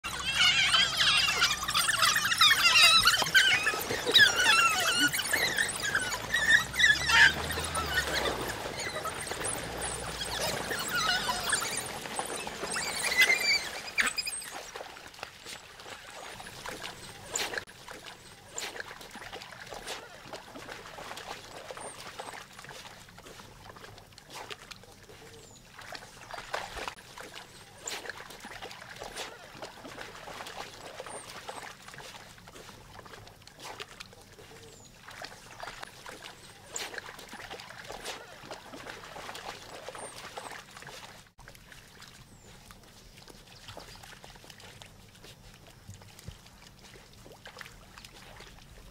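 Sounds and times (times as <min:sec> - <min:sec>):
dogs yelping and yipping: 0:00.0 - 0:14.8, 0:31.0 - 0:31.6, 0:39.7 - 0:40.5
dogs splashing in water: 0:00.0 - 0:48.9.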